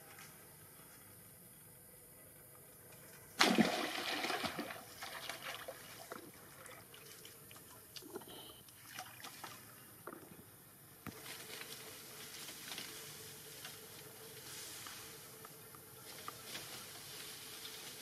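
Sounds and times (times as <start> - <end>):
loud splash into pool: 3.4 - 5.2
water sloshing and dripping: 3.4 - 10.2.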